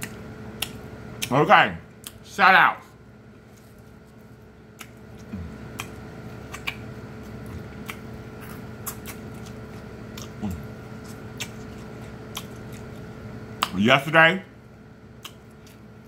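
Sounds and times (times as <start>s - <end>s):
wet chewing: 0.0s - 1.3s, 3.5s - 13.8s, 15.1s - 16.0s
crisp crunches biting corn: 4.7s - 13.8s.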